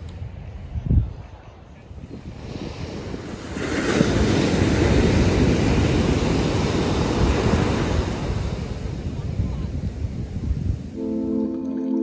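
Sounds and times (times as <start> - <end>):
ocean surf breaking on beach: 2.0 - 11.4.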